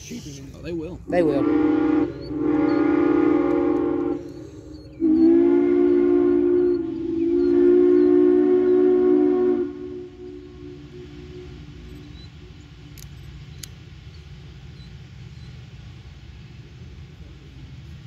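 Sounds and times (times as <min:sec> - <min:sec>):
locomotive whistle blasts: 0:01.3 - 0:12.5.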